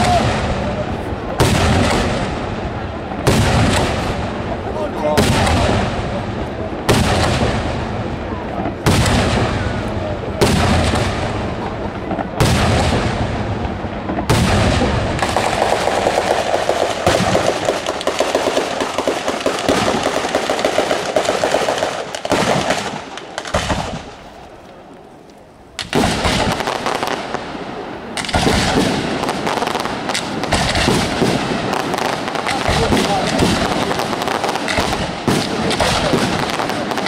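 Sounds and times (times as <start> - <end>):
sharp firework bang: 0.0 - 4.4, 5.0 - 6.2, 6.8 - 18.3, 28.2 - 37.0
firecracker barrage: 0.0 - 37.0.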